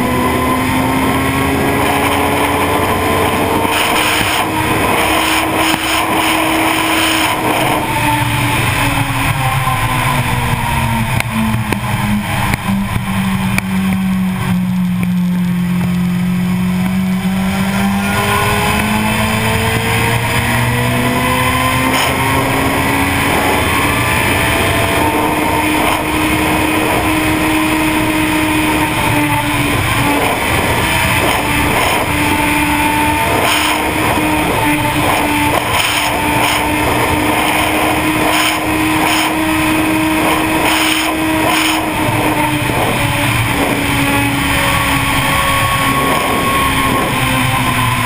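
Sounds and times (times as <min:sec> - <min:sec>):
motorcycle engine at high speed: 0:00.0 - 0:48.0
wind rush: 0:00.0 - 0:48.0.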